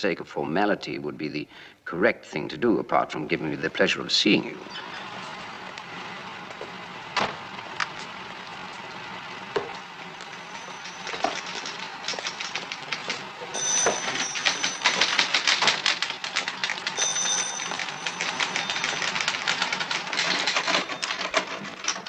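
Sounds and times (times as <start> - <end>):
typewriter keys clacking: 10.3 - 22.0
typewriter bell ring: 10.4 - 22.0.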